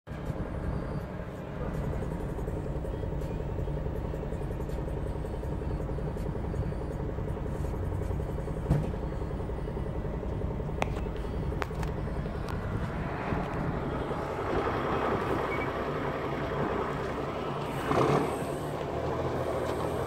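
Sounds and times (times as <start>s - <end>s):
car engine and road rumble: 0.1s - 20.0s.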